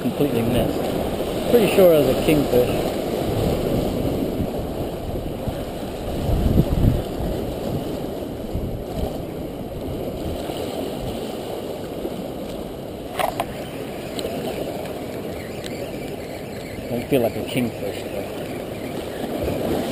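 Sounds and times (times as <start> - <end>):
waves washing against rocks: 0.0 - 19.9
wind buffeting microphone: 0.0 - 19.9.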